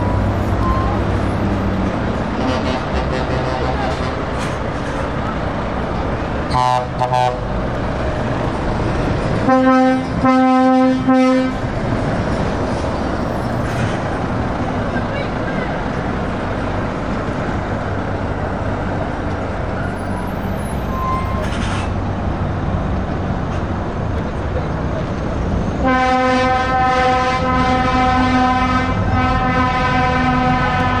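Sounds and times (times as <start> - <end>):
diesel truck engines running: 0.0 - 31.0
truck air horn blasts: 2.4 - 4.4, 6.5 - 7.4, 9.4 - 11.6, 25.8 - 31.0.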